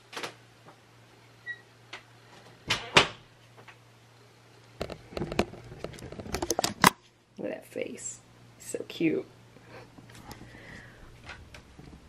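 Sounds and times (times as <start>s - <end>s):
clicks and rattles: 4.8s - 7.0s.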